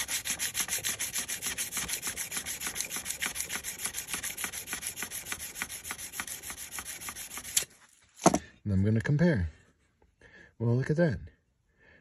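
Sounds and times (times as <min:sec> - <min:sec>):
sandpaper scraping steel blade: 0:00.0 - 0:07.8.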